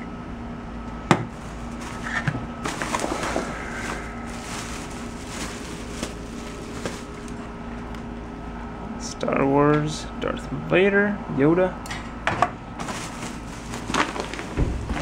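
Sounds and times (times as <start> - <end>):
faint steady hum: 0.0 - 15.0
plastic bag crinkling: 1.3 - 7.5, 12.8 - 15.0.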